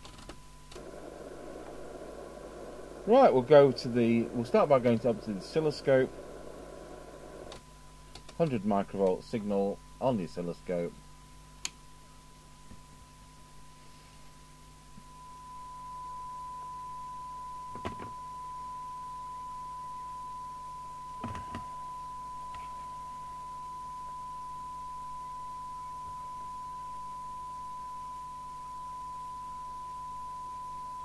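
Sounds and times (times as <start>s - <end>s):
faint mains hum: 0.0s - 31.0s
radio test tone: 0.8s - 7.6s, 15.1s - 31.0s.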